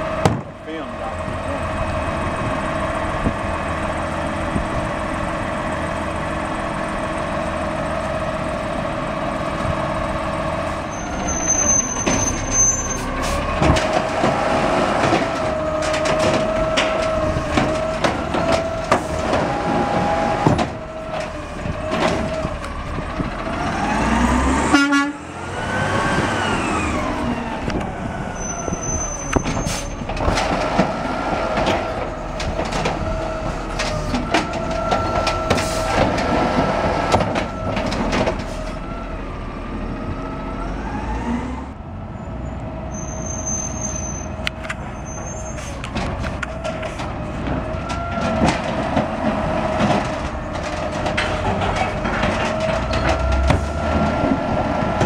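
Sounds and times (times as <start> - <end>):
diesel engines running: 0.0 - 55.0
knocks and bangs from carts: 0.2 - 0.6, 13.4 - 23.6, 29.4 - 38.6, 45.9 - 55.0.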